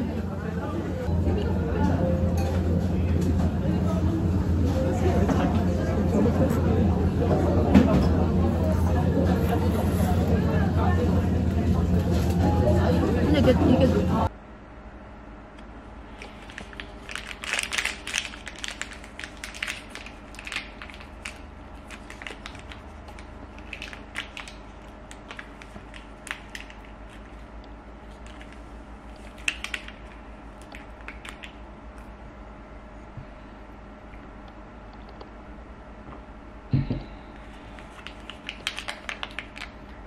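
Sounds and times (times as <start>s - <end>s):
foil sachets crinkling: 16.1s - 31.6s, 37.6s - 39.9s.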